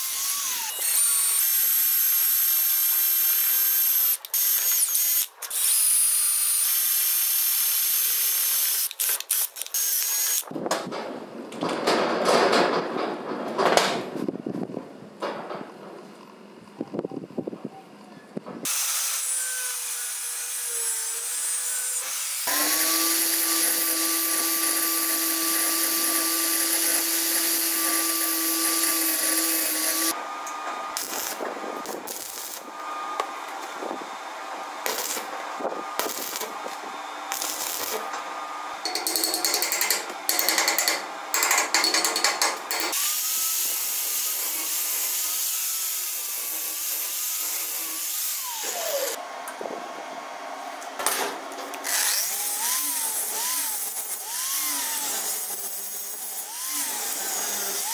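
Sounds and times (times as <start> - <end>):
angle grinder grinding steel: 0.0 - 10.5, 18.7 - 30.2, 30.9 - 34.0, 34.8 - 49.2, 51.8 - 57.9
arc welder crackling: 0.0 - 10.5, 21.2 - 34.0, 34.8 - 49.2
power tool running: 0.0 - 10.5, 18.6 - 34.2, 34.8 - 49.2, 51.7 - 57.9.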